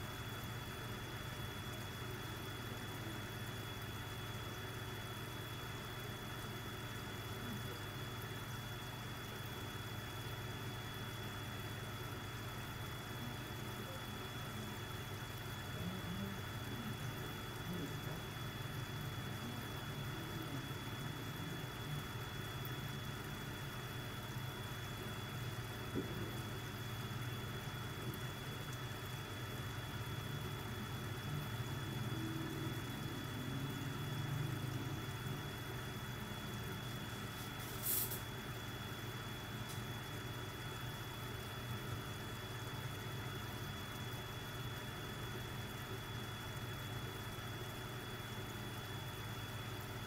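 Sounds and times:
aquarium air pump humming: 0:00.0 - 0:50.0
faint high-pitched whine: 0:00.0 - 0:50.0.

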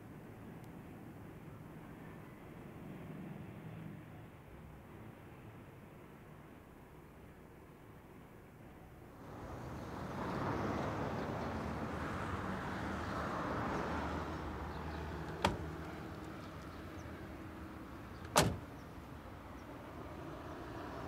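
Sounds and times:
distant traffic hum: 0:09.0 - 0:21.0
car door slamming shut: 0:15.3 - 0:15.8, 0:18.2 - 0:18.7
car door clicking open: 0:15.3 - 0:16.3, 0:18.2 - 0:18.7.

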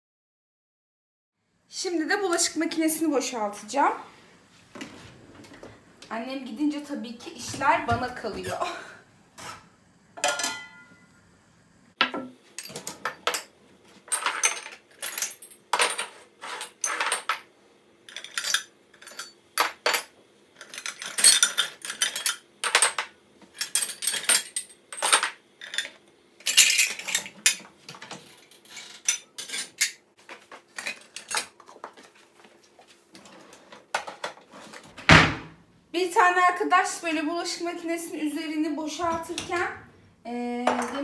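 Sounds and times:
dishes clinking and clattering: 0:09.4 - 0:11.1, 0:12.0 - 0:17.5, 0:18.1 - 0:32.1.

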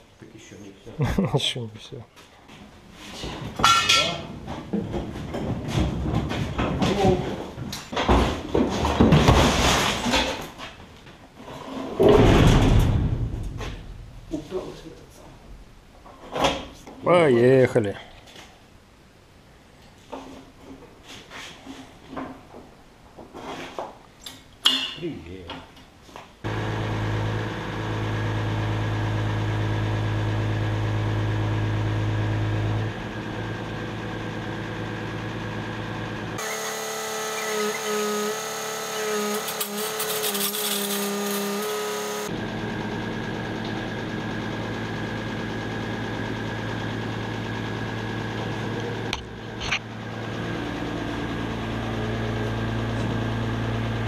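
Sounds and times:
truck engine droning: 0:26.5 - 0:37.4, 0:41.4 - 0:54.0
hydraulic crane whining: 0:26.5 - 0:54.0.

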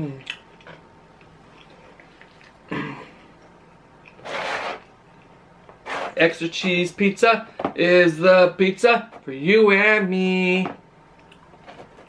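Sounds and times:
man clearing throat: 0:02.7 - 0:03.2.

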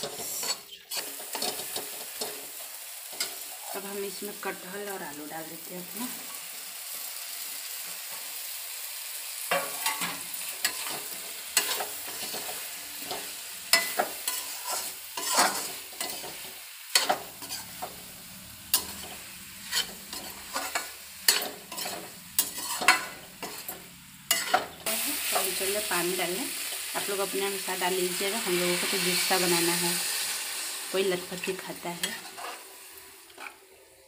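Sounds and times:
spatula scraping metal pan: 0:00.0 - 0:02.5, 0:09.5 - 0:18.0, 0:18.7 - 0:25.5, 0:32.0 - 0:32.7, 0:33.3 - 0:33.6
food sizzling in a pan: 0:00.0 - 0:34.0.

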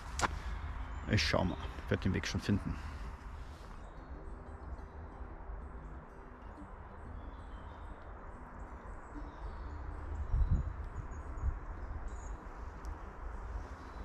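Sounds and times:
footsteps on dirt path: 0:00.0 - 0:00.6
faint birds chirping: 0:00.0 - 0:14.0.

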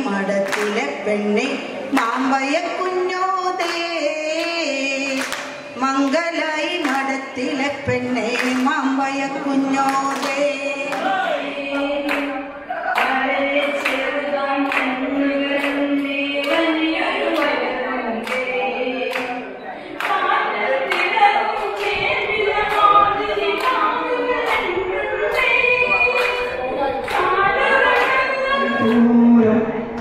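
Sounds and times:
voices singing together: 0:00.0 - 0:30.0
hand clapping: 0:00.4 - 0:00.9, 0:03.5 - 0:07.1, 0:07.9 - 0:08.9, 0:09.8 - 0:15.0, 0:15.6 - 0:16.7, 0:17.3 - 0:18.5, 0:19.1 - 0:19.4, 0:20.0 - 0:22.1, 0:25.3 - 0:29.1.

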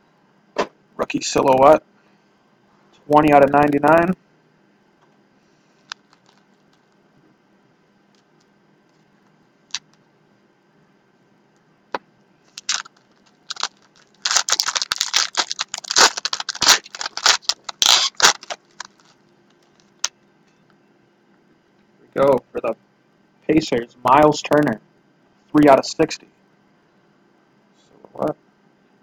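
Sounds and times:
packaging crinkling and scraping: 0:05.8 - 0:06.9, 0:12.5 - 0:20.1.

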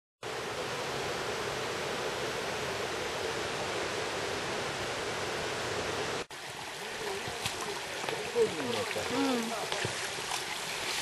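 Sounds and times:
stream rushing over rocks: 0:00.3 - 0:11.0
gurgling water: 0:06.3 - 0:11.0.

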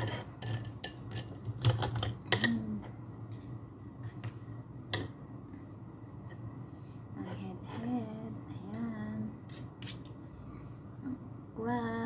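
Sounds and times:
cutlery scraping a ceramic plate: 0:00.0 - 0:02.5, 0:09.5 - 0:10.2.

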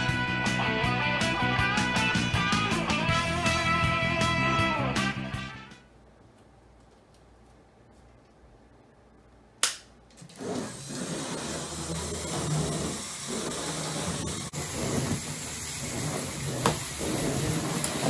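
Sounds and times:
sharp crack: 0:09.6 - 0:10.0.

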